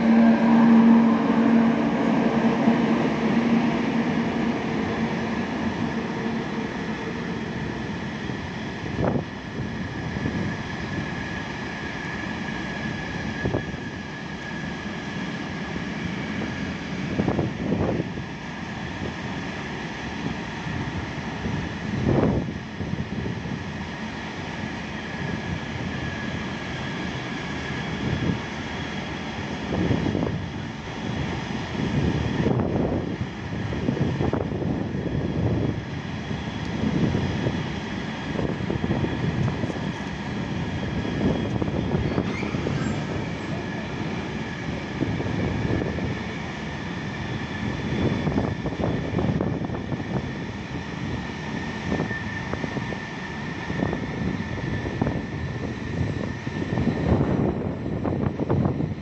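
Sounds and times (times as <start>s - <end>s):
steady high whine: 0.0s - 19.2s
low train rumble: 0.0s - 59.0s.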